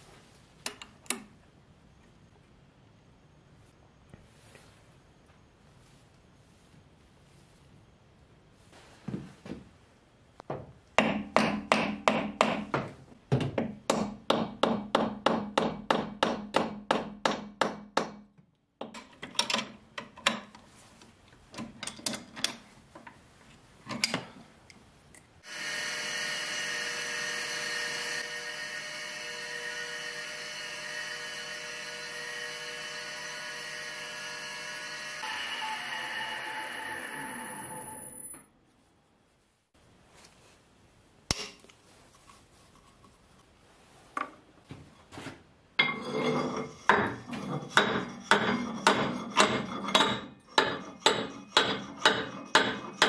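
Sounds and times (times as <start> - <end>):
lathe running with whine: 25.4 - 38.3
wooden mallet knocking on metal: 47.7 - 53.0.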